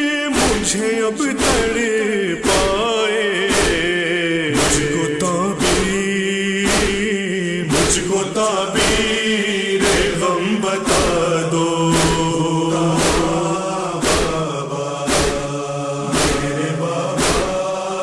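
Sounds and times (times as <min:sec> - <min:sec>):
sharp beat: 0:00.3 - 0:17.8
voices chanting: 0:07.7 - 0:18.0.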